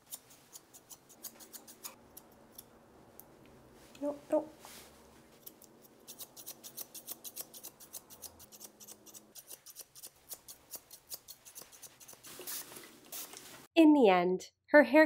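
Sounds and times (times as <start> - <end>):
shears snipping fur: 0.0 - 2.7, 5.3 - 13.4.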